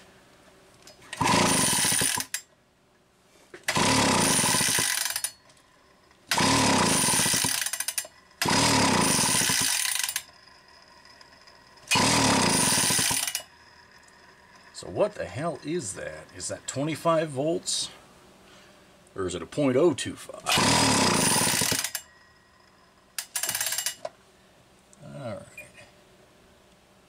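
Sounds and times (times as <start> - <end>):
chainsaw recoil starter pulled: 1.0 - 2.4, 3.6 - 5.4, 6.3 - 16.4, 20.4 - 22.1, 23.2 - 24.1.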